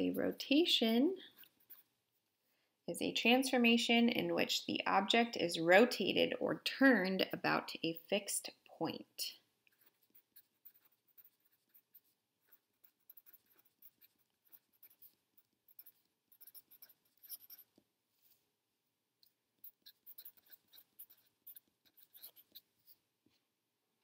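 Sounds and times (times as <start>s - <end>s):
marker scratching on paper: 0.0s - 2.0s, 9.7s - 17.8s, 19.6s - 23.0s.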